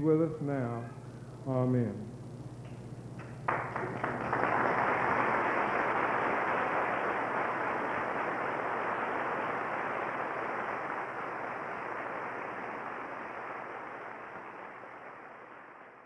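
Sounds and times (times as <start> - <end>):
audience applauding: 3.2 - 16.0.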